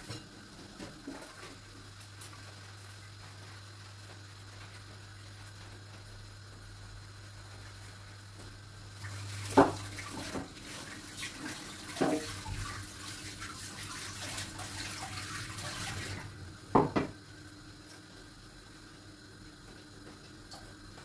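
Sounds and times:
tap running into sink: 9.4s - 10.6s, 11.4s - 12.8s, 14.2s - 17.2s
things knocking in sink: 9.5s - 10.6s, 11.9s - 12.6s, 16.7s - 17.2s.

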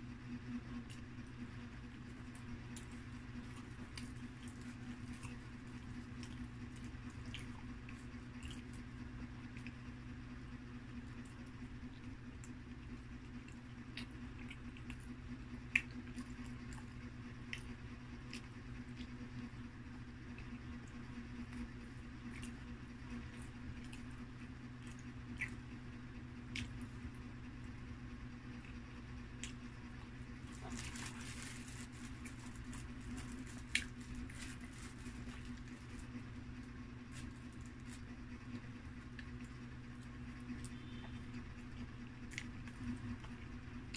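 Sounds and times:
low hum: 0.0s - 43.9s
person chewing: 2.0s - 8.9s, 20.3s - 27.2s, 28.5s - 43.9s
paper crackling and rustling: 30.2s - 38.6s.

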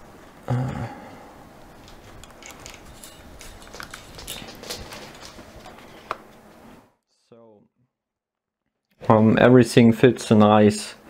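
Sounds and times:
steady room hum: 0.0s - 7.6s
handling clicks and rustles: 1.6s - 6.8s.

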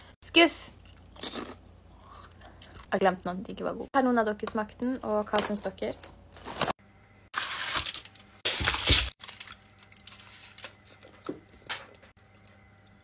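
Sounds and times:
foil wrapper crinkling: 7.4s - 11.2s.

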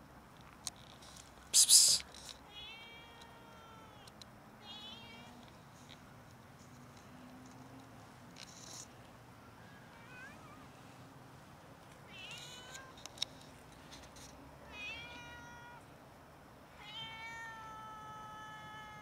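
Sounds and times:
cats meowing: 2.5s - 5.4s, 9.5s - 10.8s, 12.1s - 13.0s, 14.7s - 15.9s, 16.8s - 19.0s.

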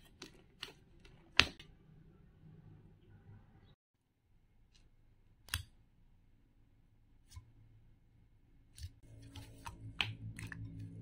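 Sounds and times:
slime squelching: 8.7s - 11.0s
soft background music: 9.0s - 11.0s.

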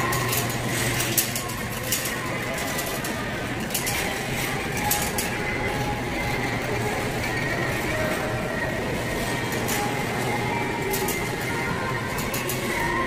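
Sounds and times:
store background din: 0.0s - 13.0s.

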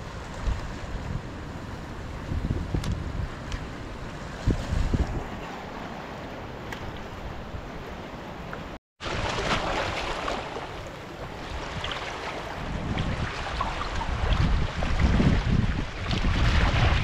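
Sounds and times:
sea water lapping over rocks: 9.0s - 17.0s.

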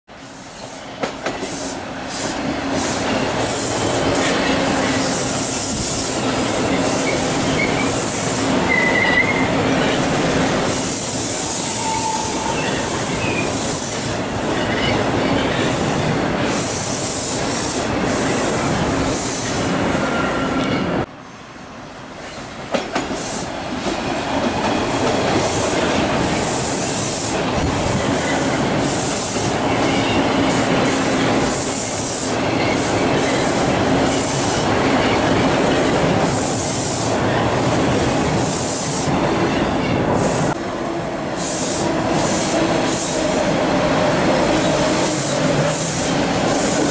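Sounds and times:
subway train rumble: 0.1s - 46.9s
high-pitched wheel squeal: 6.9s - 9.5s, 11.5s - 15.0s.

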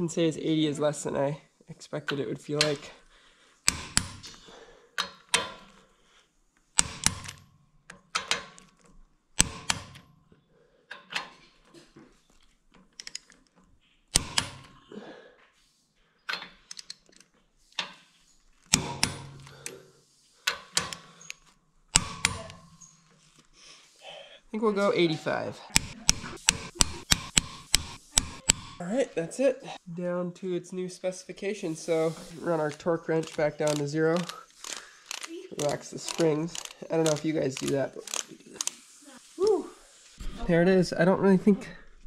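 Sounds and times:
torque wrench clicking: 12.7s - 13.4s, 20.4s - 22.9s, 25.7s - 28.8s, 32.6s - 38.8s.

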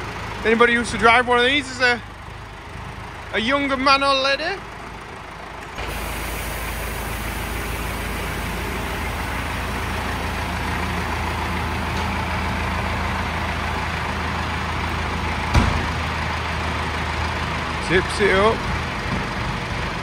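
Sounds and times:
diesel tractor engine running: 0.0s - 20.0s
low thump: 15.5s - 16.0s.

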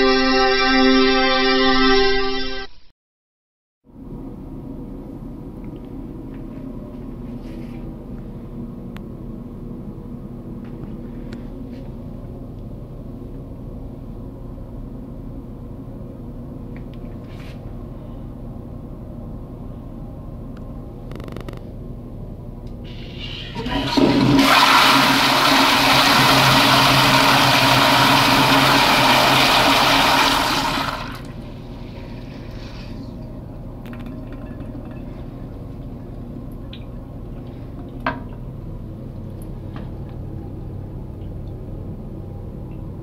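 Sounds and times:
toilet flushing: 22.8s - 38.0s.

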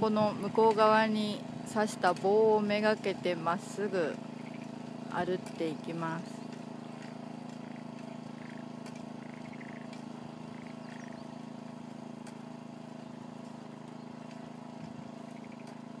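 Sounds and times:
small engine running: 0.0s - 16.0s
faint ticks: 6.5s - 11.2s.

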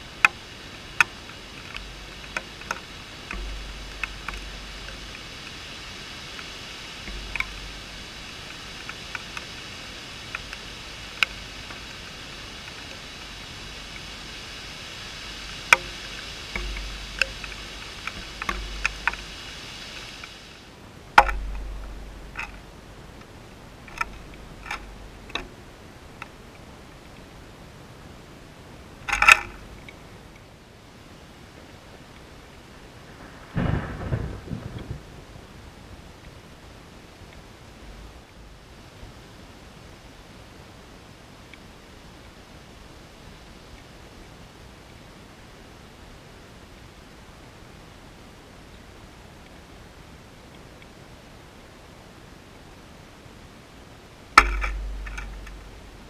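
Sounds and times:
low rumbles: 0.0s - 27.6s, 32.8s - 39.0s, 54.3s - 56.0s
raindrop ticks: 0.0s - 28.0s, 28.6s - 30.5s, 31.5s - 40.2s, 41.3s - 45.0s, 54.3s - 56.0s
steady rain hiss: 0.0s - 56.0s.

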